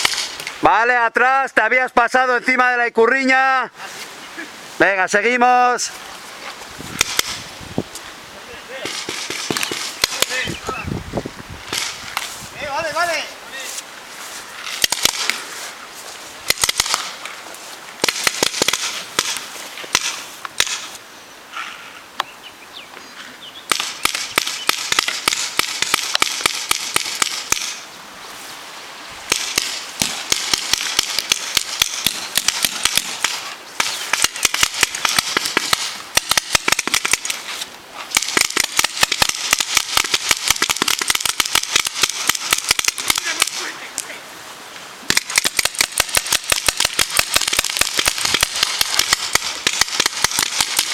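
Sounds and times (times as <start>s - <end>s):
paintball markers firing: 7.0s - 7.4s, 8.8s - 10.4s, 11.7s - 12.3s, 14.7s - 15.4s, 16.5s - 17.2s, 18.0s - 20.9s, 23.7s - 27.8s, 29.3s - 37.5s, 38.1s - 43.6s, 45.1s - 50.9s.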